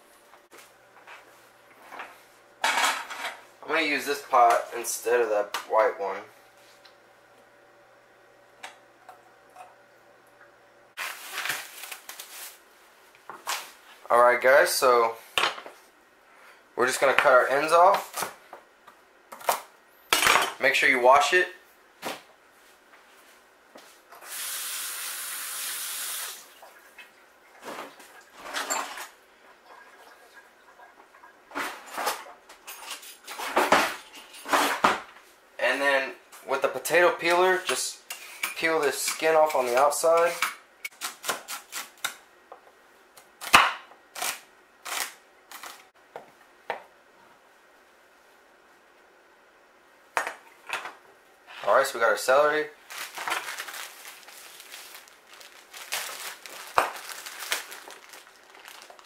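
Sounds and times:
faucet running: 24.2 - 26.7.

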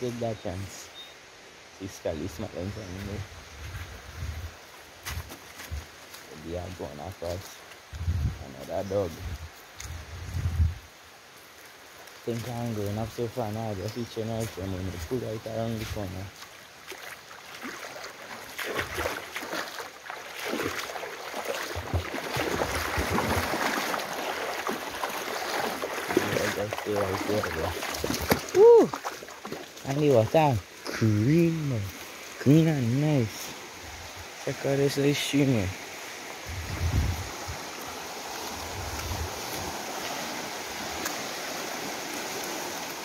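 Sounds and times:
low rumbles on microphone: 8.0 - 10.8, 36.5 - 37.3
river water rushing: 10.9 - 43.0.

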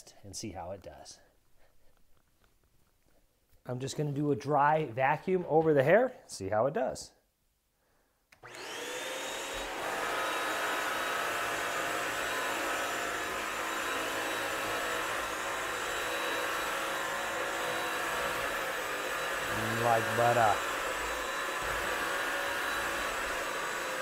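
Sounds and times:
floor cleaner motor whine: 8.4 - 24.0.

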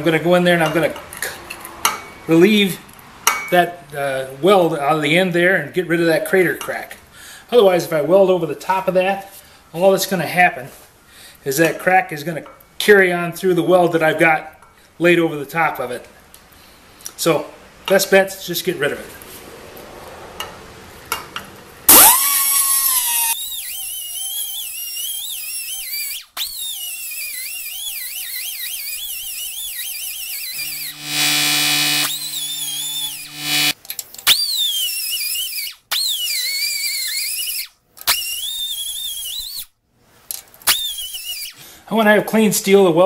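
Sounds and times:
cut-off tool grinding steel: 21.9 - 37.5
steady buzzing hum: 30.3 - 33.8.

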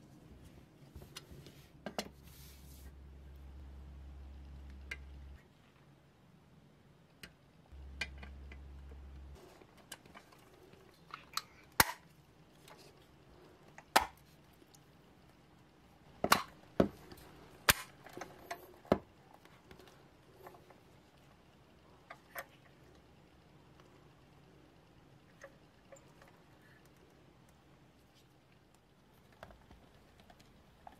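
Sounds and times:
short low hum: 2.1 - 5.4, 7.7 - 11.0.

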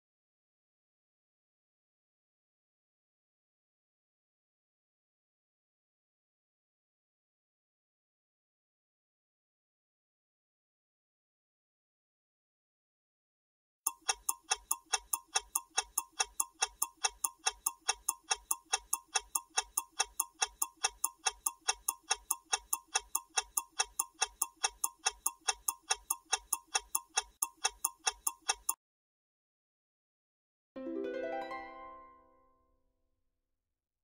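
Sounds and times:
clock ticking: 13.9 - 28.8.

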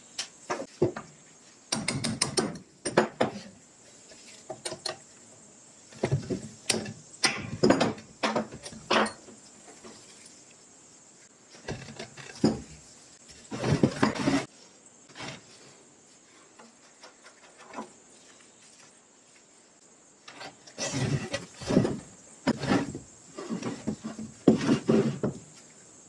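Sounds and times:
metal parts clattering on wood: 13.5 - 14.5.

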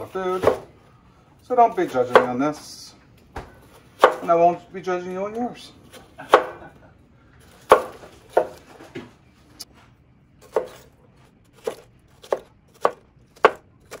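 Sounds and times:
knife chopping on wooden board: 2.0 - 2.4, 3.4 - 4.3, 6.0 - 6.6, 7.6 - 8.6, 10.4 - 10.9, 11.6 - 14.0.

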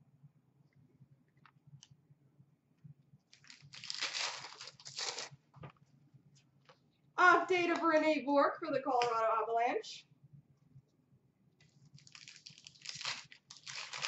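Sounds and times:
foil wrapper crinkling and tearing: 3.3 - 5.4, 11.9 - 14.0.

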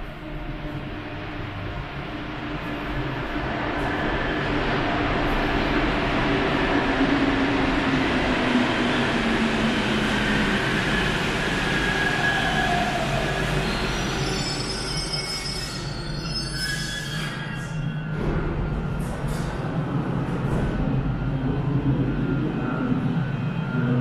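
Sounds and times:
metro train motor whine: 0.0 - 24.0
train squeals: 8.7 - 19.7.

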